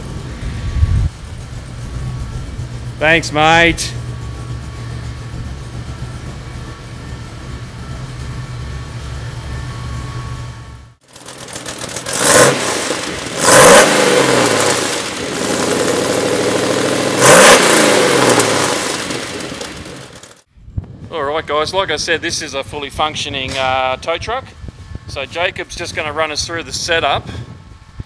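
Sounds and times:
truck engine idling and revving: 0:00.0 - 0:20.5.

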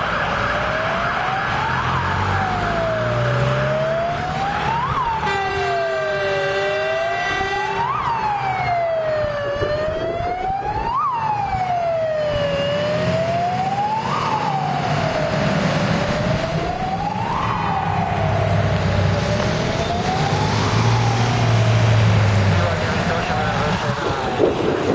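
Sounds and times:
fire engine siren wailing: 0:00.0 - 0:24.9
truck engine: 0:00.0 - 0:24.9
air horn blaring: 0:04.6 - 0:08.1.

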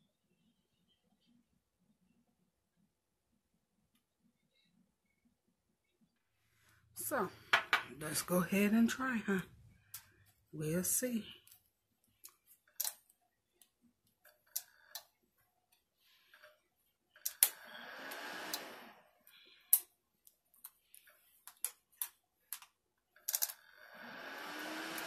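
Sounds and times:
dryer fan blowing: 0:17.6 - 0:19.1, 0:23.9 - 0:25.0.

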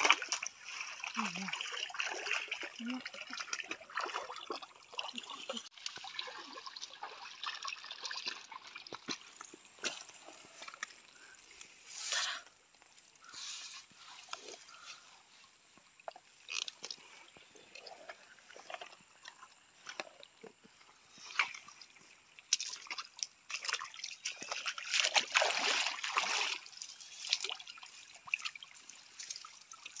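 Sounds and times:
rushing water: 0:00.0 - 0:11.4, 0:21.2 - 0:30.0
rocky stream trickling: 0:00.0 - 0:12.0, 0:15.4 - 0:30.0.

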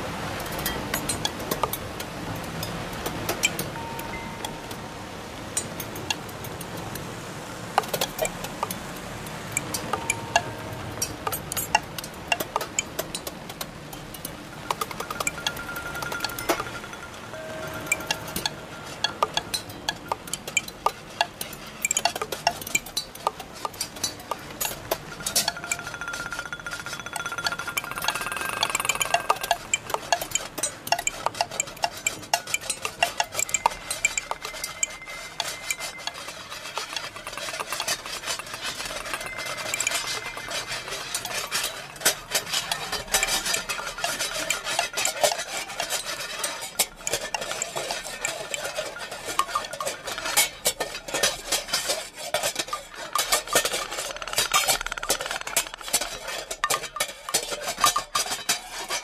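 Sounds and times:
clatter of small hard clicks: 0:54.1 - 0:56.1.

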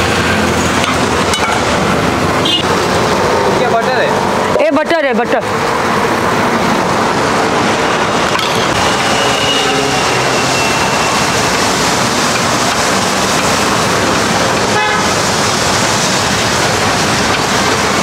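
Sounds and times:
street traffic noise: 0:00.0 - 0:18.0
vehicle horn toot: 0:02.4 - 0:02.6, 0:08.8 - 0:11.5, 0:14.7 - 0:15.1.

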